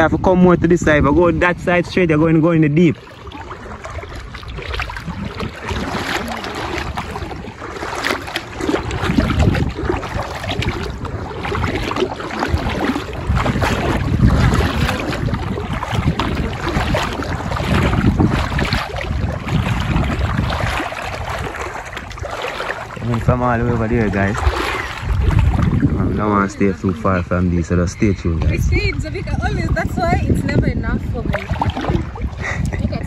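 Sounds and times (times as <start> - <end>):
water sloshing and splashing: 0.0 - 33.0
wind buffeting microphone: 0.0 - 33.0.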